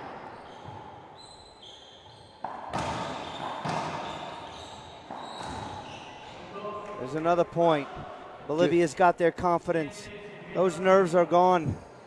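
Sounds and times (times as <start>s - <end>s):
sneakers squeaking: 0.0s - 7.2s
ball striking racquets and wall: 2.4s - 6.0s.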